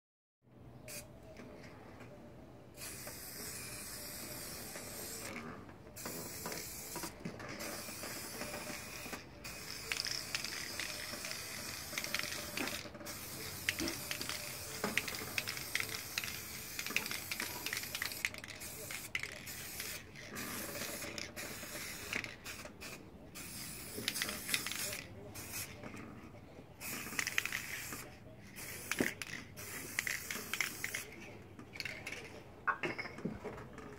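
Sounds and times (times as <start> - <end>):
aerosol spray can hissing: 2.8 - 5.3, 7.7 - 25.7.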